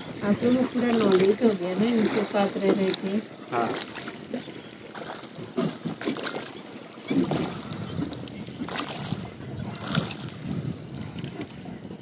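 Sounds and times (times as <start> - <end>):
oar splashes and knocks: 0.0 - 12.0
water wash: 0.0 - 12.0
wind: 0.0 - 12.0.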